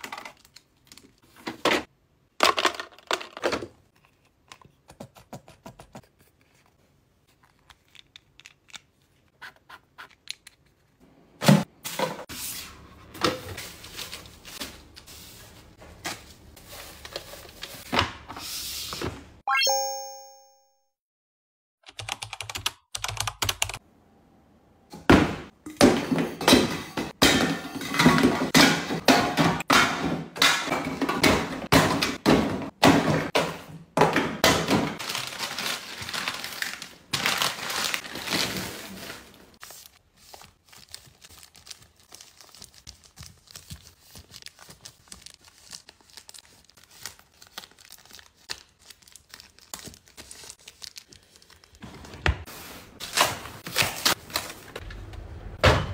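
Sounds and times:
plastic packaging crinkling: 35.0 - 39.0, 40.6 - 51.8.

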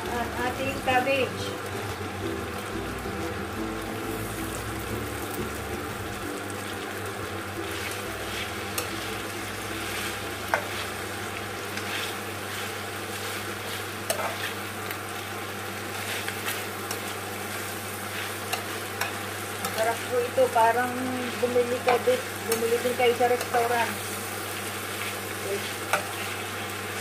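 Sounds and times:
food sizzling in a frying pan: 0.0 - 27.0
spatula tapping and scraping pan: 14.1 - 14.5.

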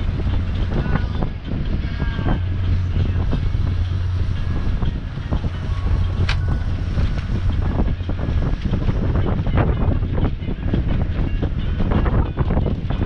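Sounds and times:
diesel engine humming: 0.0 - 13.0
wind buffeting microphone: 0.0 - 13.0.

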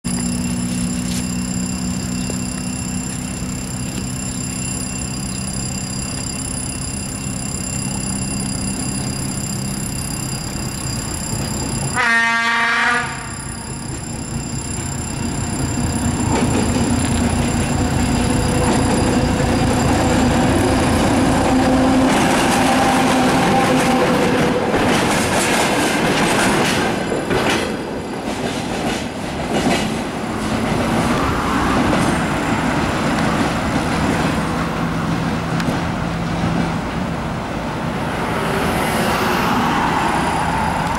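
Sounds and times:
wheel squeal: 0.1 - 12.2, 13.0 - 24.3
locomotive horn blast: 11.9 - 13.7
wagons clattering over rail joints: 13.8 - 37.0.

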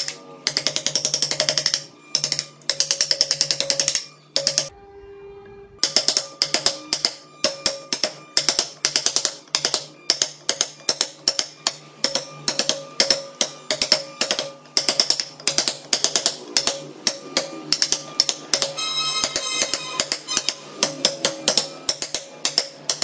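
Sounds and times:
mallet striking chisel into wood: 5.8 - 23.0.

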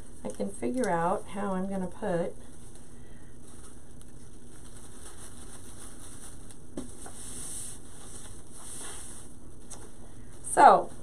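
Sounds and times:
rustling and crinkling mesh: 2.4 - 10.0.

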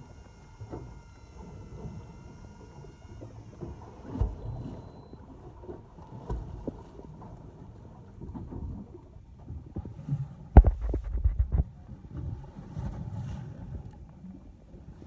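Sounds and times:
choppy water: 0.0 - 15.0
wind: 0.0 - 15.0
dull thumps: 10.6 - 11.7.

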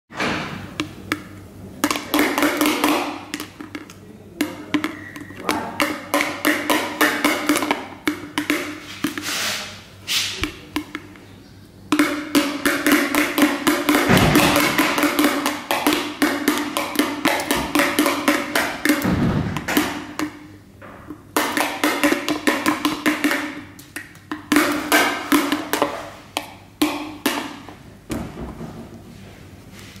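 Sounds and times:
rattle tapping clicks: 0.8 - 9.3.

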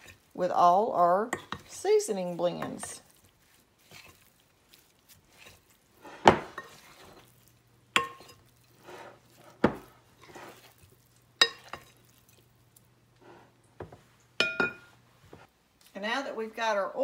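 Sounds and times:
squishing of raw meat: 0.0 - 0.4, 1.0 - 13.2.

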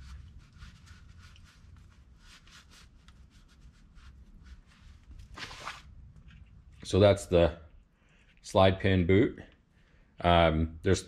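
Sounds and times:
scratchy rubbing strokes: 0.0 - 5.9.

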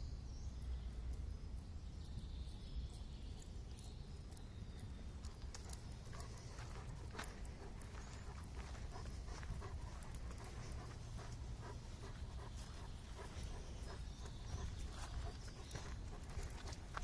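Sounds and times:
low steady rumble: 0.0 - 17.0
dog panting: 5.1 - 17.0.

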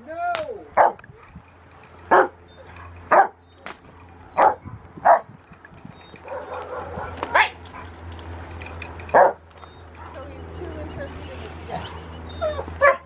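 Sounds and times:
dog barking: 0.8 - 1.0, 3.1 - 3.4, 4.4 - 5.3, 6.3 - 7.9, 12.8 - 13.0.

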